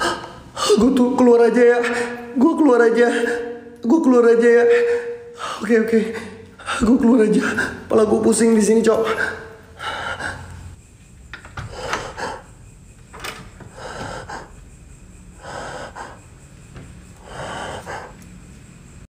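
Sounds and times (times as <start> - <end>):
man breathing heavily: 9.1 - 10.8, 11.6 - 12.7, 13.6 - 18.4.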